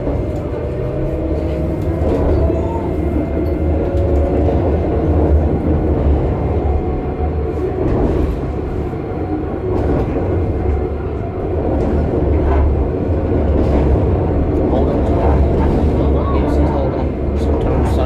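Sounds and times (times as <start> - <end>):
tram interior hum: 0.0 - 18.0
wheels rumbling on rails: 0.0 - 18.0.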